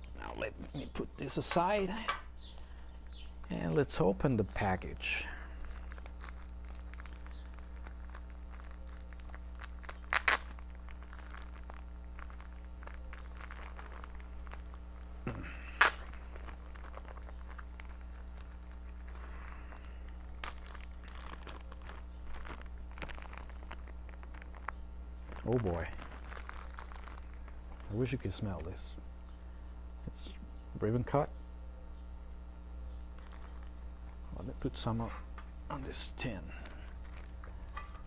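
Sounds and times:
plastic pouch crinkling: 2.5s - 28.7s, 33.1s - 34.2s, 36.5s - 38.0s.

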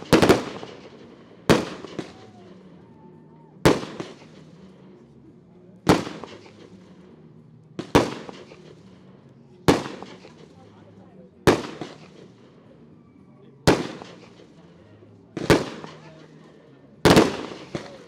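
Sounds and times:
firework shells bursting: 0.0s - 2.2s, 17.0s - 18.0s.

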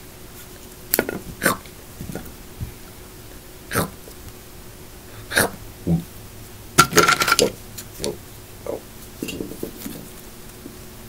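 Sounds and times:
person making vocal noises: 1.2s - 2.4s, 3.7s - 4.0s, 5.2s - 6.1s
person mumbling: 3.7s - 4.0s.

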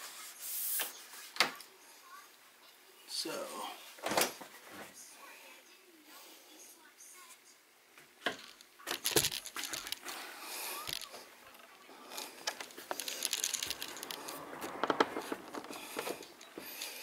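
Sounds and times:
material crinkling and tearing: 10.8s - 16.5s.

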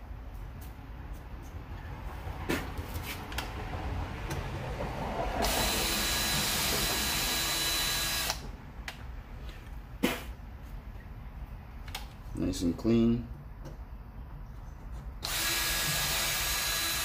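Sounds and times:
cordless drill whining: 5.4s - 8.4s, 15.2s - 17.0s
drill clicks: 5.4s - 8.4s, 15.2s - 17.0s.

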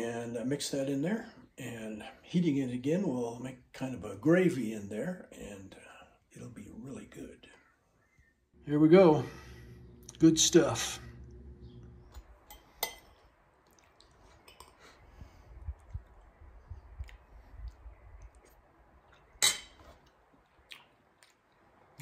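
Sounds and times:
soft chewing: 11.3s - 22.0s.

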